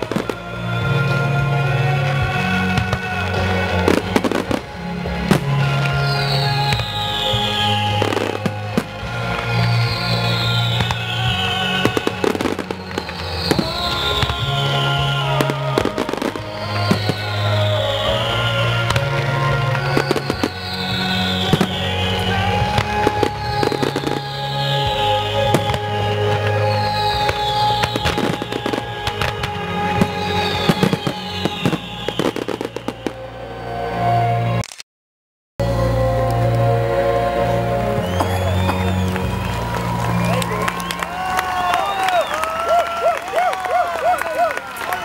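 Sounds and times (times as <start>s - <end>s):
fireworks bursting and crackling: 0.0s - 33.6s
music: 0.0s - 34.6s, 35.6s - 45.0s.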